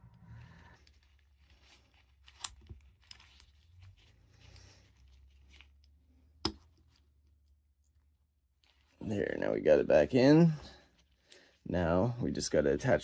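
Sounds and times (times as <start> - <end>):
faint clicks and scrapes: 0.0 - 9.0.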